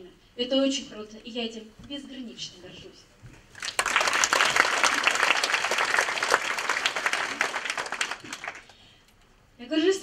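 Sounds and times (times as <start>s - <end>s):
audience applauding: 3.6s - 8.8s.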